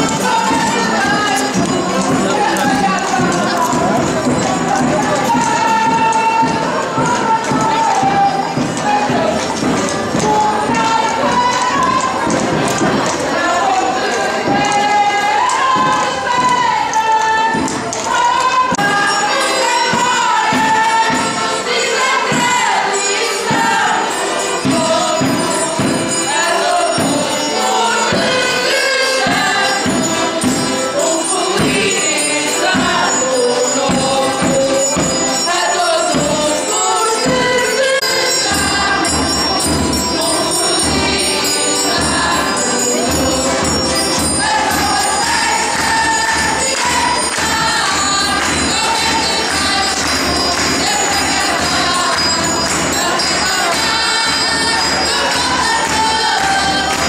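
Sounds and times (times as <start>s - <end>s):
group singing together: 0.0s - 57.0s
hand percussion beat: 0.0s - 57.0s.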